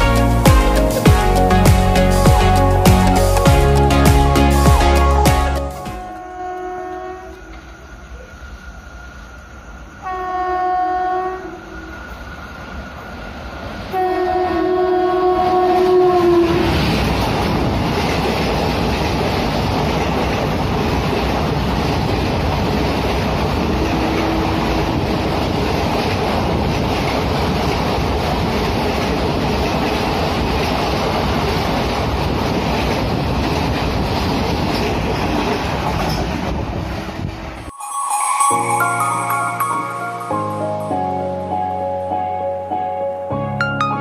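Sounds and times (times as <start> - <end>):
train wheels rumbling on rails: 15.2 - 37.7.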